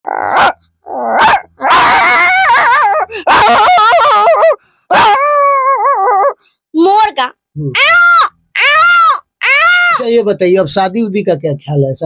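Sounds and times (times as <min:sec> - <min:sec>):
boy howling like a dog: 0:00.0 - 0:06.4, 0:07.8 - 0:10.1.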